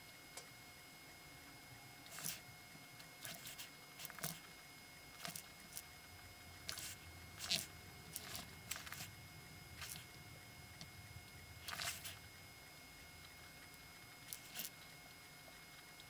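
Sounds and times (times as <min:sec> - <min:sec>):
faint steady hum: 0:00.0 - 0:16.0
marker scratching on paper: 0:02.1 - 0:02.4, 0:03.2 - 0:04.4, 0:06.7 - 0:09.1, 0:11.6 - 0:12.2.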